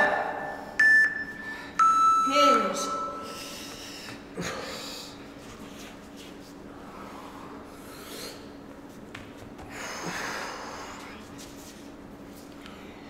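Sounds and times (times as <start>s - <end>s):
low steady hum: 0.0s - 13.0s
people breathing hard: 3.2s - 6.0s, 6.6s - 8.7s, 9.6s - 11.3s.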